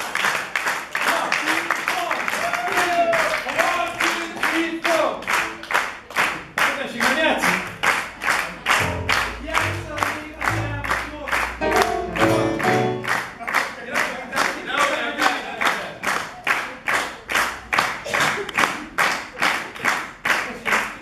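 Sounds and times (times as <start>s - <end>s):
audience clapping in time: 0.0s - 21.0s
live band music: 8.7s - 13.2s.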